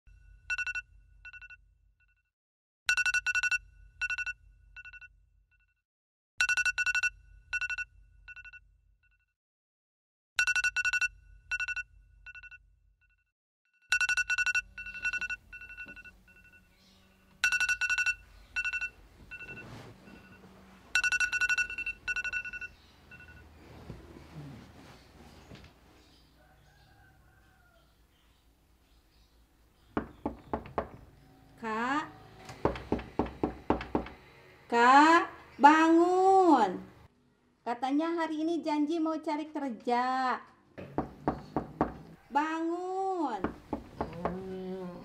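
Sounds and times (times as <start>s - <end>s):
mobile phone ringtone: 0.4s - 1.6s, 2.9s - 5.1s, 6.4s - 8.6s, 10.4s - 12.6s, 13.9s - 23.8s.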